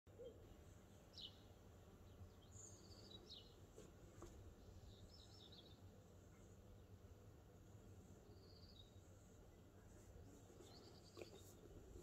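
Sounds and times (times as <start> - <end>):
distant bird chirps: 0.1 - 6.9, 8.2 - 9.2, 10.4 - 12.0
faint outdoor ambience: 0.1 - 12.0.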